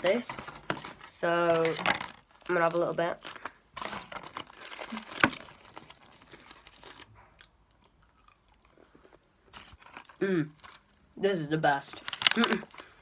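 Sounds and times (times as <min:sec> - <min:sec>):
person chewing chocolate: 0:03.3 - 0:11.1.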